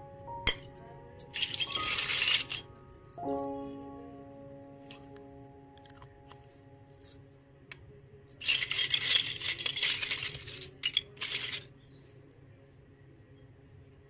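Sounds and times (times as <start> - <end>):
toy utensils clinking: 0.4 - 3.4, 8.3 - 11.9.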